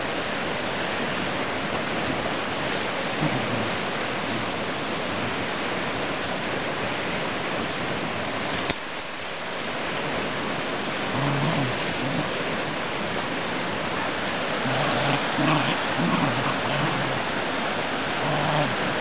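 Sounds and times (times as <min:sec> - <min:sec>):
dogs growling: 0:02.8 - 0:05.6, 0:11.0 - 0:19.0.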